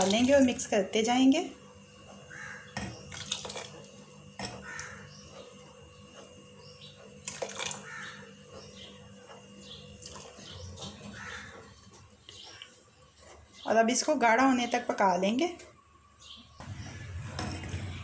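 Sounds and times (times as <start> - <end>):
bird calling: 2.3 - 3.0, 7.7 - 9.0, 9.6 - 12.7
liquid pouring into saucepan: 3.0 - 4.0, 7.2 - 7.9.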